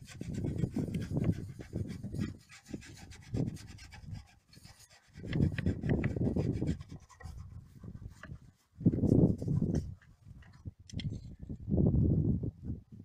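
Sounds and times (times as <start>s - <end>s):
metal scraper rasping on wood: 0.0s - 8.5s.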